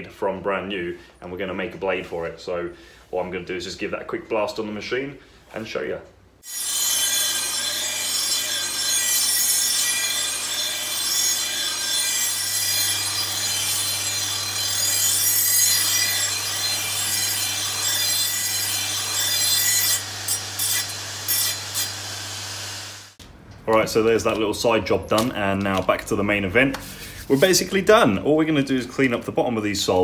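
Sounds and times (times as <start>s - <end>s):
metal blade grinding on wheel: 6.5s - 23.2s.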